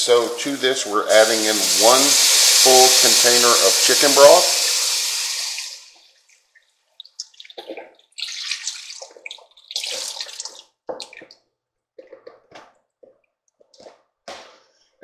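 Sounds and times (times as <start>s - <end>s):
broth pouring into a pot: 0.3s - 6.0s, 7.2s - 10.6s
short splashes and drips: 5.3s - 11.4s.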